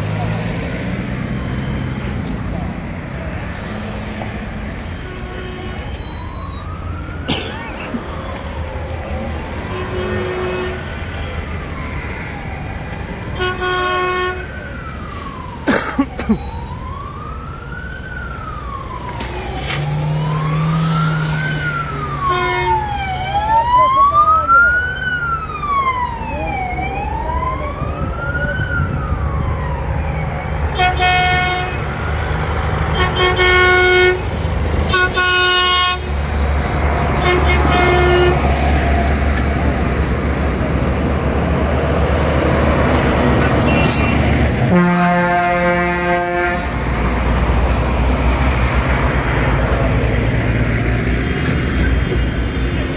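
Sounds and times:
tractor engines rumbling: 0:00.0 - 0:52.9
police siren wailing: 0:00.4 - 0:52.9
vehicle horn blasts: 0:05.0 - 0:06.1, 0:09.7 - 0:10.8, 0:13.4 - 0:14.4, 0:22.3 - 0:22.8, 0:30.8 - 0:31.8, 0:32.9 - 0:34.2, 0:34.8 - 0:36.1, 0:37.2 - 0:38.4, 0:43.6 - 0:46.7.

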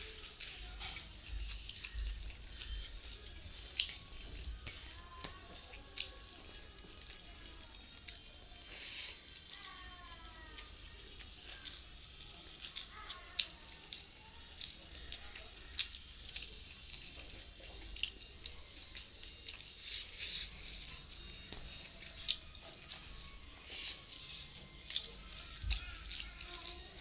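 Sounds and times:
fingers mixing rice on steel plate: 0:00.0 - 0:09.5.

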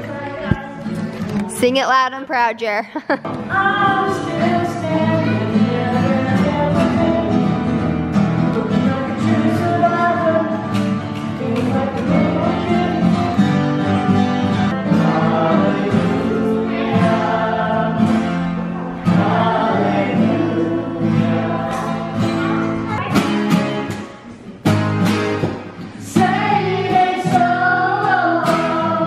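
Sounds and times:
acoustic guitars strummed: 0:03.2 - 0:29.0
group of voices singing: 0:03.4 - 0:23.1, 0:25.9 - 0:29.0.

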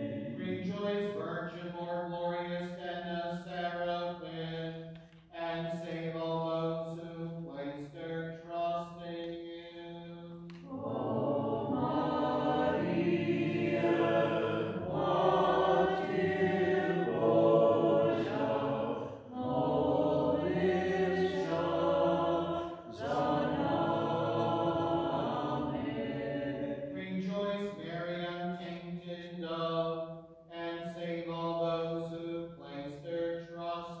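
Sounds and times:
choir chanting unaccompanied: 0:00.0 - 0:01.2, 0:10.6 - 0:27.0.

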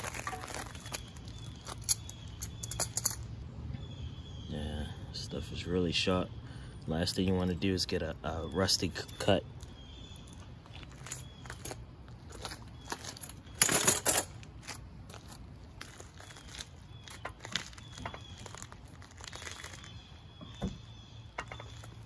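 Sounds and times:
small metal clicks and scrapes: 0:00.0 - 0:03.2.

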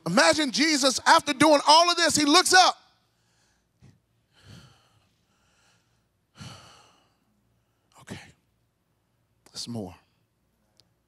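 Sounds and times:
man breathing into microphone: 0:03.1 - 0:07.2.

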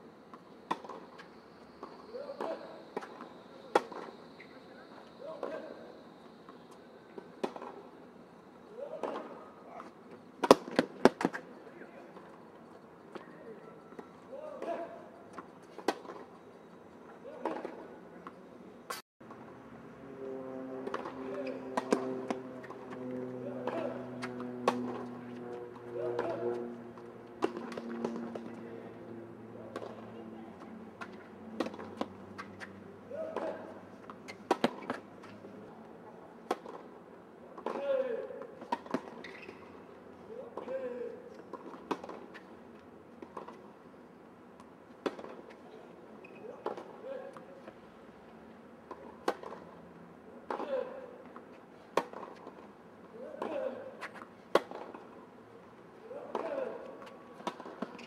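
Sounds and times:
tennis ball hitting rackets: 0:08.9 - 0:11.4, 0:20.8 - 0:28.6, 0:29.7 - 0:30.2, 0:31.0 - 0:35.5, 0:36.4 - 0:36.9, 0:37.5 - 0:39.6, 0:41.4 - 0:42.5, 0:48.9 - 0:49.8, 0:50.4 - 0:52.7, 0:53.3 - 0:55.2, 0:56.2 - 0:58.0
racquet hitting tennis ball: 0:33.2 - 0:35.0, 0:51.9 - 0:52.6.

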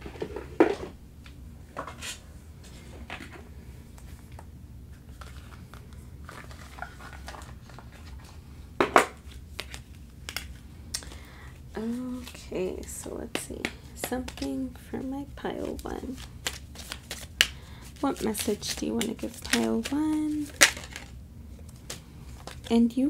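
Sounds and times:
cards rustling and clicking: 0:03.9 - 0:08.4, 0:09.0 - 0:11.3, 0:11.9 - 0:12.5, 0:13.3 - 0:14.8, 0:15.5 - 0:22.8.

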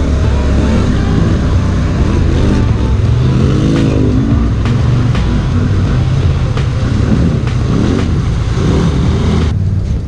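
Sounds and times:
quad engine revving: 0:00.0 - 0:09.6.

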